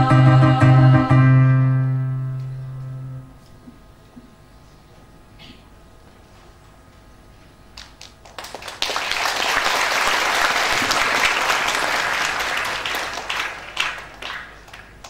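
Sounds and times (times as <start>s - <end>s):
audience applauding: 7.8s - 15.0s.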